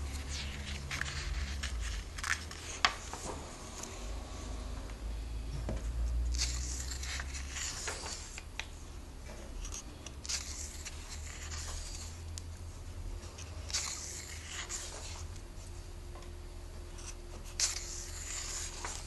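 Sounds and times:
comic book pages turning: 0.0s - 4.0s, 6.2s - 8.7s, 9.6s - 12.4s, 13.3s - 15.4s, 17.0s - 19.0s
paper rustle: 0.0s - 4.0s, 6.3s - 8.5s, 9.6s - 12.2s, 13.2s - 15.3s, 17.4s - 19.0s
low steady hum: 0.0s - 19.0s.

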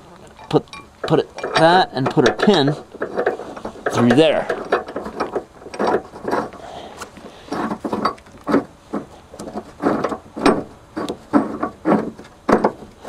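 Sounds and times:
hardware knocks and clinks: 0.3s - 6.5s.

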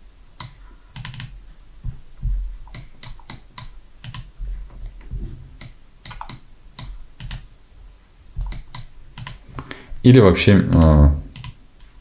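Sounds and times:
mouse and keyboard clicking: 0.4s - 1.4s, 2.7s - 4.3s, 5.6s - 7.5s, 8.4s - 9.4s, 10.7s - 11.6s
dull low thumps: 1.8s - 2.7s, 4.4s - 5.6s.

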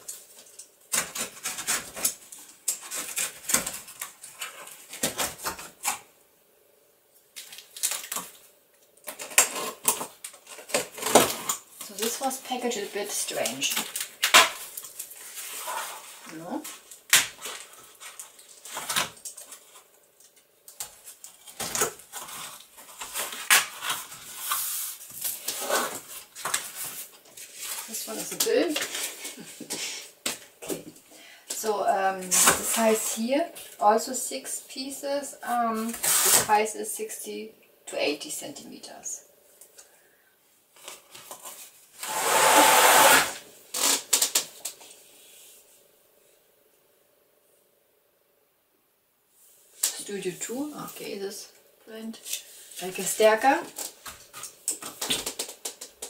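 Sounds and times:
cardboard scraping and rustling: 14.4s - 19.8s
canvas scraping against cardboard: 42.0s - 43.9s.

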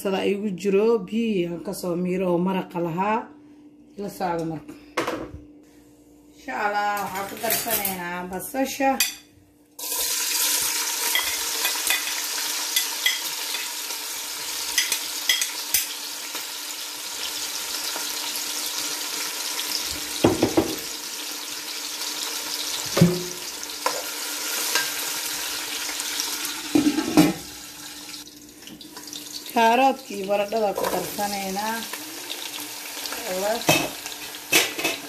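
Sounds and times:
onions sizzling in hot oil: 9.8s - 35.0s.

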